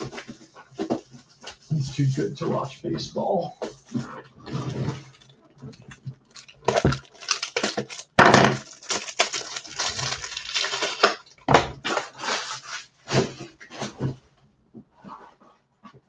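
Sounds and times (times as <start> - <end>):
packaging crinkling and tearing: 5.0 - 13.5.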